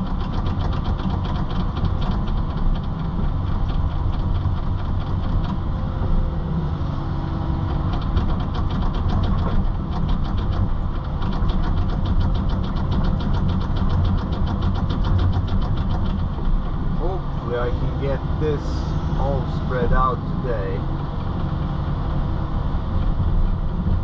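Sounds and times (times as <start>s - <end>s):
fast regular clicking: 0.0s - 5.6s, 7.7s - 16.7s
engine running: 0.0s - 24.0s.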